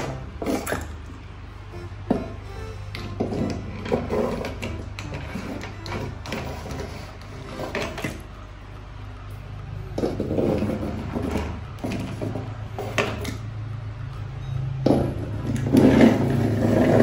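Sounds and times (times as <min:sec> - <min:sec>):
toy cars scraping on wood: 0:00.0 - 0:00.9, 0:03.1 - 0:08.2, 0:10.0 - 0:13.4, 0:15.5 - 0:17.0
steady low hum: 0:00.0 - 0:17.0.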